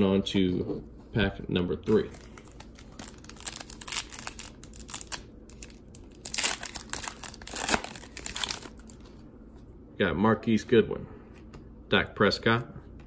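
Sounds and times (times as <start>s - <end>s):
card pack wrapper tearing: 2.0s - 9.0s.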